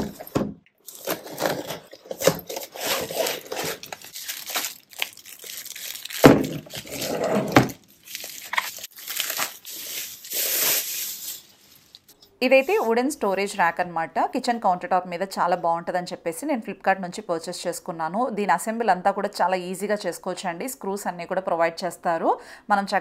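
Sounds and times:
packaging tearing and crinkling: 0.0 - 12.0.

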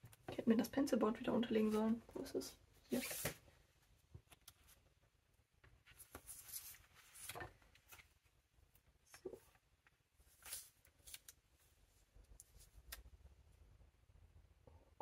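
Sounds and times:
paper rustling: 2.9 - 3.5, 5.7 - 8.2, 9.4 - 11.7.

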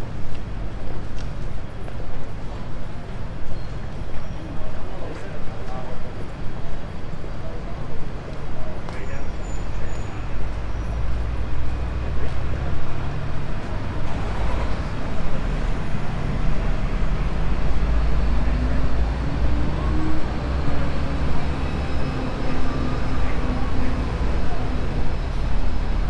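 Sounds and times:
street noise: 0.0 - 26.0
diesel engine rumble: 7.7 - 26.0.

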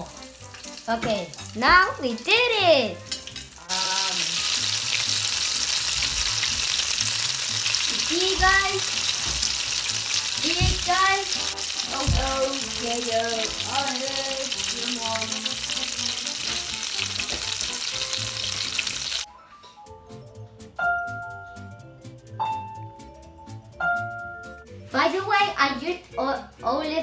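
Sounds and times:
patties sizzling in oil: 0.0 - 19.3.

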